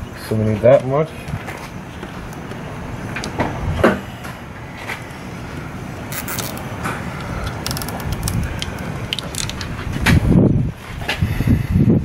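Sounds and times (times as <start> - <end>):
low rumble: 1.2 - 12.0
wiring clicking and rustling: 6.1 - 10.2.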